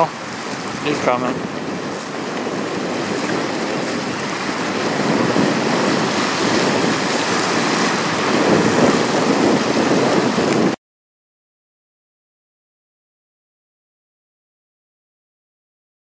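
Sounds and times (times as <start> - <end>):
river water splashing against wall: 0.0 - 10.8
wind on microphone: 0.0 - 10.8.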